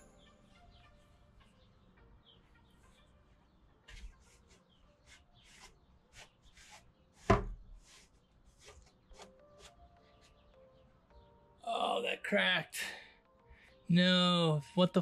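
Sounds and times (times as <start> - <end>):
cloth wiping plastic helmet: 3.9 - 10.4
knock against plastic: 7.3 - 7.6.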